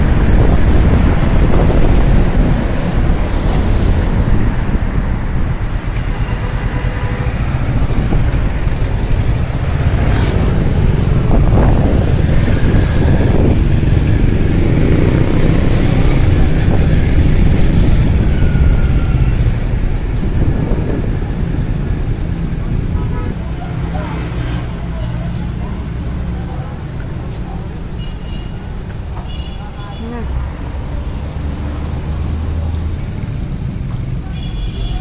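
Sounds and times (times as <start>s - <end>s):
wind noise: 0.0s - 23.4s
motorcycle engine rumble: 0.0s - 29.8s
road noise: 0.0s - 35.0s
traffic: 0.0s - 35.0s.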